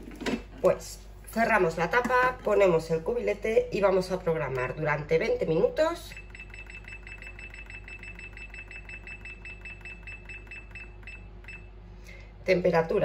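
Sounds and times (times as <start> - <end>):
food processor short high beeps: 6.1 - 11.7.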